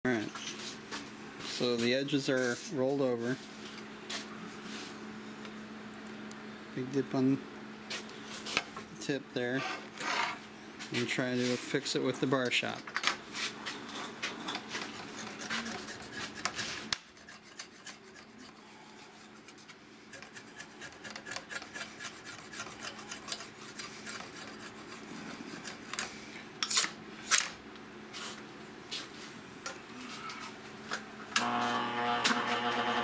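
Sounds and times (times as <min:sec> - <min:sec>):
chainsaw bar scraping on metal: 0:19.4 - 0:25.0
grinder motor humming: 0:31.3 - 0:33.0.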